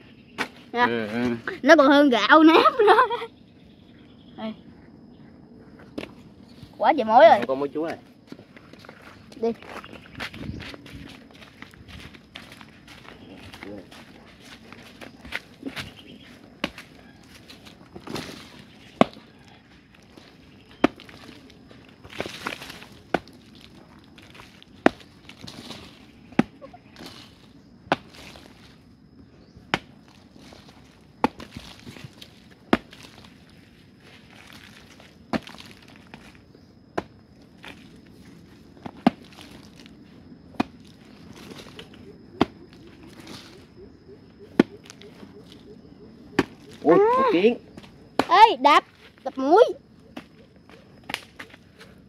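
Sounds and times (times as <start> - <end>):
soil scraping: 7.3 - 29.0, 29.7 - 43.8
digging tool chopping hard earth: 15.0 - 16.9, 17.9 - 19.3, 20.7 - 21.4, 22.0 - 23.5, 24.2 - 28.6, 29.7 - 33.3, 38.8 - 39.8, 40.5 - 41.8, 42.4 - 43.5, 44.5 - 45.0.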